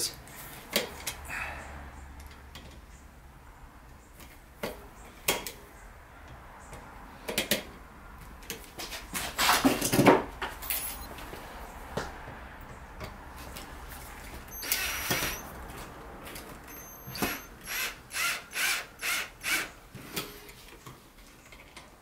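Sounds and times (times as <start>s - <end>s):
screwdriver scraping metal screw: 14.5s - 15.4s, 16.7s - 20.5s.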